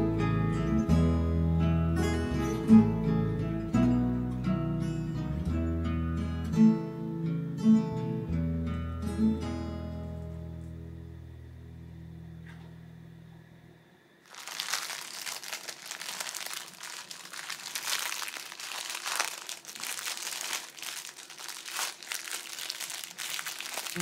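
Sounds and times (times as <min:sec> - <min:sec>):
acoustic guitar music: 0:00.0 - 0:11.0
plastic wrapping crinkling: 0:14.3 - 0:24.0.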